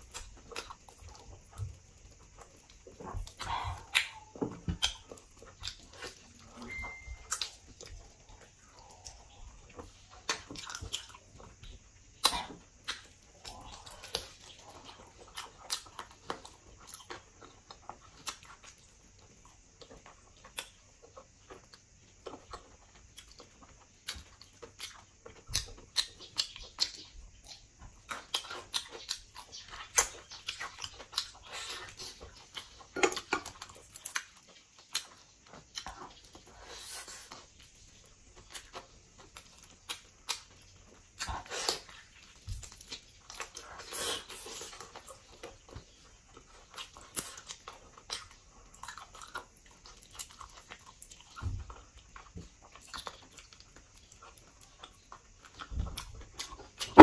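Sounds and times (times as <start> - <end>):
chewing and biting food: 0.0 - 57.0.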